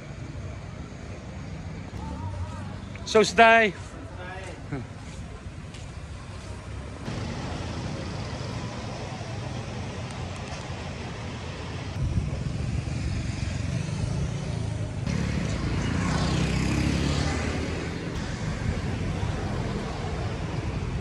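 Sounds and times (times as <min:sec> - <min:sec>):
cars passing: 0:00.0 - 0:21.0
motor scooters passing: 0:06.6 - 0:21.0.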